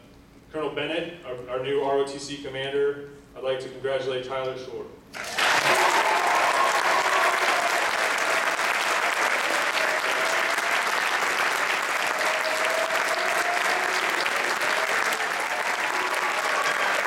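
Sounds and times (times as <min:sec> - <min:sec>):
audience applauding: 0:05.2 - 0:17.0.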